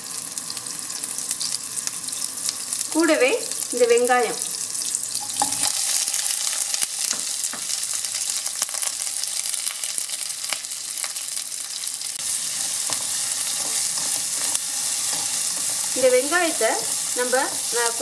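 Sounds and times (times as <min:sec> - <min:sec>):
onions sizzling in butter: 0:00.0 - 0:18.0
spatula scraping pan: 0:12.3 - 0:18.0.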